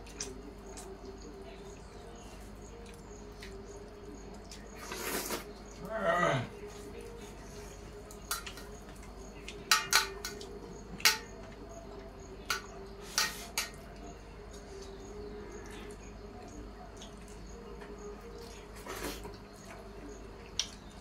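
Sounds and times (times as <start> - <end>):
metal plates clinking: 9.7 - 11.4, 12.5 - 13.8.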